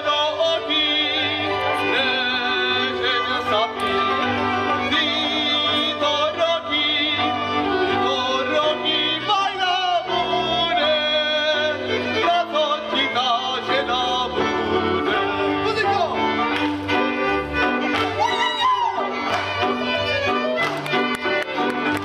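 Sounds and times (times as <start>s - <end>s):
men singing folk song: 0.0s - 15.7s
fiddle: 0.0s - 22.0s.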